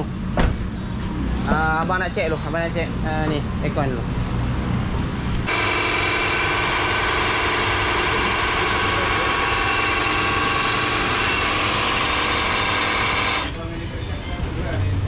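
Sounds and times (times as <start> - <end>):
engine idling: 5.4 - 13.6.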